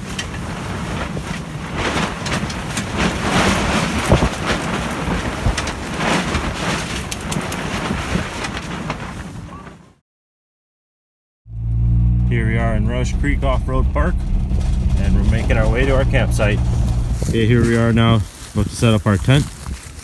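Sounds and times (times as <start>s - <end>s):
tent fabric flapping in wind: 0.0s - 10.0s, 12.6s - 20.0s
wind rumble on microphone: 0.0s - 10.0s, 11.5s - 20.0s.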